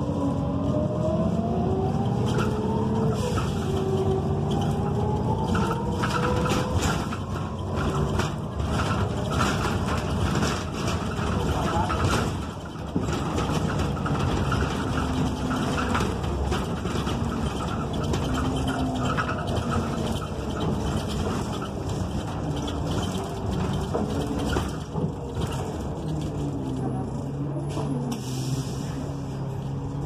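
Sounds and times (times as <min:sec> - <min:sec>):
bus engine running: 0:00.0 - 0:30.0
road noise: 0:00.0 - 0:30.0.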